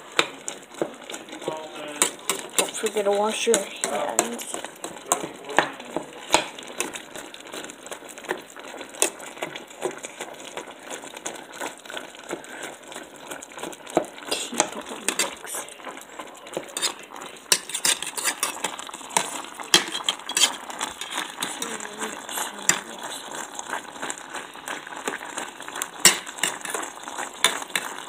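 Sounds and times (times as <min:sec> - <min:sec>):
spatula scraping metal pot: 0:00.2 - 0:07.1, 0:14.2 - 0:15.6, 0:16.5 - 0:28.0.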